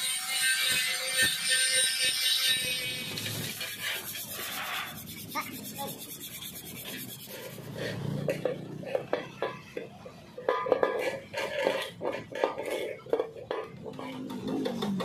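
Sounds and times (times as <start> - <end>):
sandpaper scratching metal: 0.0 - 8.2.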